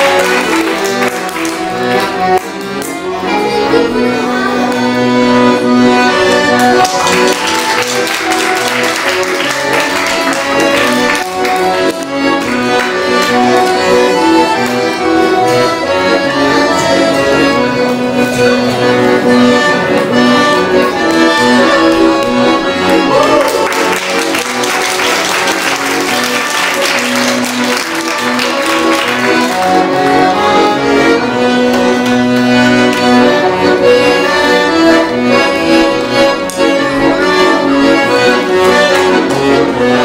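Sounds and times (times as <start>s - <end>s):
accordion playing a tune: 0.0s - 40.0s.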